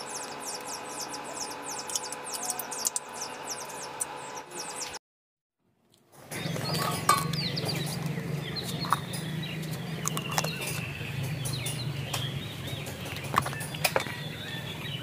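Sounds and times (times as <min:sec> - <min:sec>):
birds chirping: 0:00.0 - 0:05.0, 0:06.3 - 0:15.0
sharp clicks: 0:00.0 - 0:05.0
steady low hum: 0:00.0 - 0:05.0.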